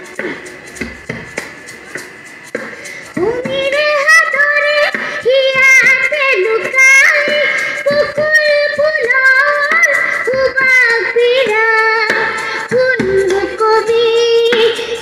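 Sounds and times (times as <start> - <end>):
girl singing into microphone: 3.2 - 15.0.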